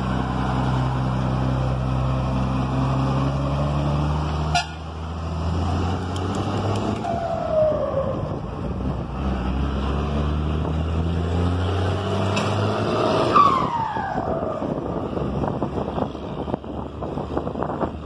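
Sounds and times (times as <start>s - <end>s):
diesel truck engine running: 0.0s - 11.7s.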